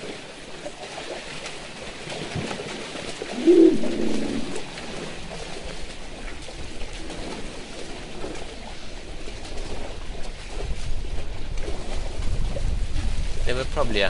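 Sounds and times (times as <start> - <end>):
faint bird calls: 3.3 - 4.6
low rumble: 3.3 - 4.8.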